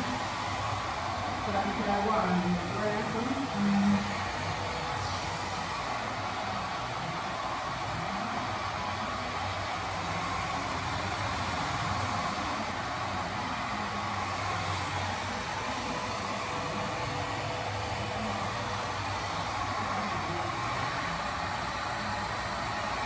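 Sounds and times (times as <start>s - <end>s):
hair dryer blowing: 0.0s - 23.0s.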